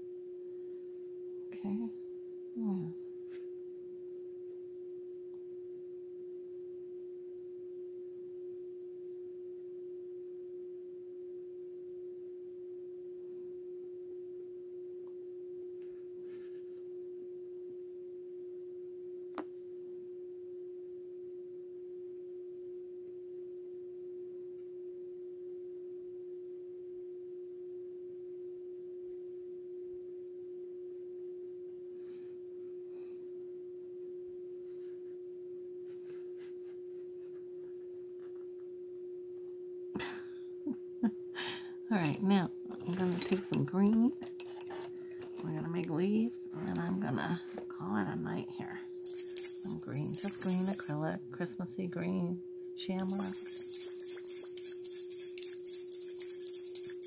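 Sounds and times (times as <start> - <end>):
steady hum: 0.0 - 12.4, 28.1 - 57.0.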